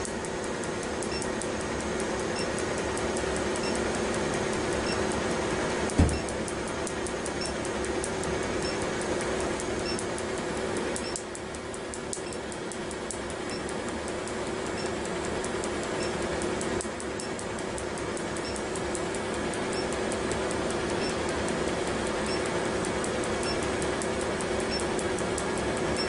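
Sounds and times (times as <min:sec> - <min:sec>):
equipment hum and hiss: 0:00.0 - 0:26.0
laser pulses snapping: 0:05.8 - 0:10.2, 0:10.8 - 0:21.4.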